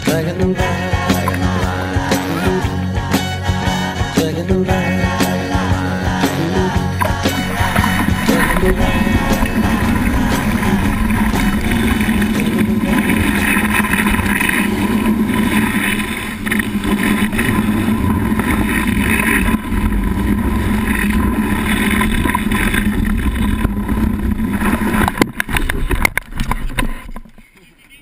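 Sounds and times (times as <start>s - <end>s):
water rushing and spraying: 6.3s - 27.2s
wind buffeting microphone: 7.4s - 27.0s.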